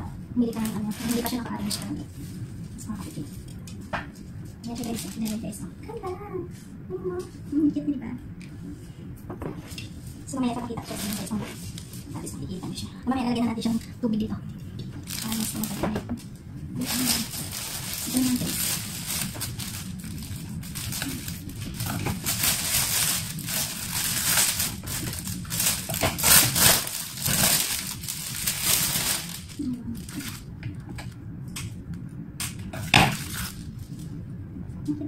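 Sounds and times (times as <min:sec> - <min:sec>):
plastic wrapping crinkling: 0:00.4 - 0:06.0, 0:09.7 - 0:13.9, 0:14.9 - 0:30.7, 0:32.5 - 0:34.1.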